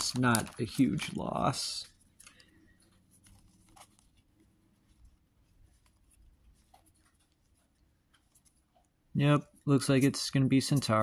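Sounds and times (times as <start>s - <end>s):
trading cards flipping: 0.0s - 4.3s.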